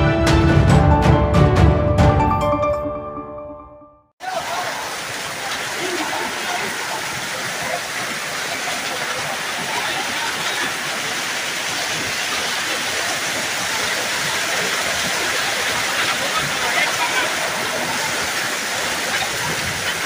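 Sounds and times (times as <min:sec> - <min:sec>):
hail and rain pelting ground: 0:04.2 - 0:20.0.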